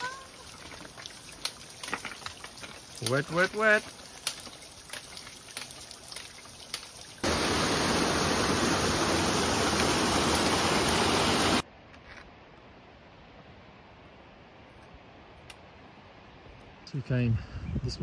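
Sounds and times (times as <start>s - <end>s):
waterfall rushing: 7.2s - 11.6s.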